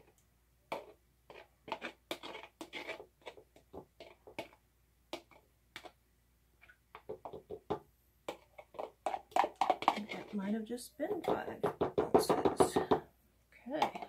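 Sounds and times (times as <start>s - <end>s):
metal spoon scraping plastic tub: 0.0s - 6.0s, 8.3s - 12.8s.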